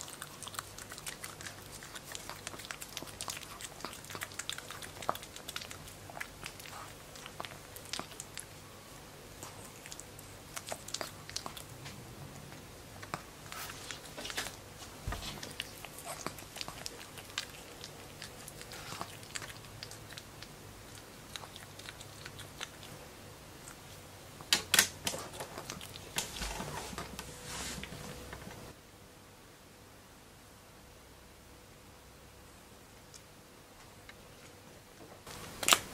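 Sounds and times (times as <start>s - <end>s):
puppy licking and smacking lips: 0.0s - 8.6s, 9.3s - 23.0s.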